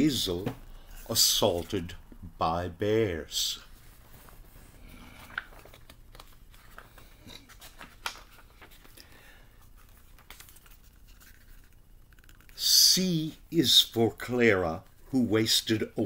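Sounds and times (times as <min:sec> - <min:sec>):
book pages rustling: 0:03.7 - 0:12.6.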